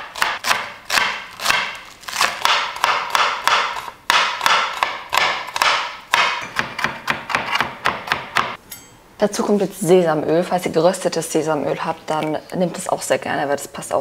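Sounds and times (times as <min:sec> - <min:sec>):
knife chopping on cutting board: 0:00.0 - 0:08.6.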